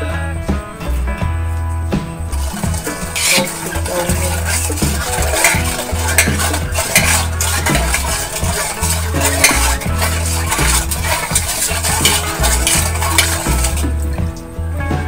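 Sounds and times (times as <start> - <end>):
background music with bass: 0.0 - 15.0
metal spoon scraping steel bowl: 2.3 - 14.2.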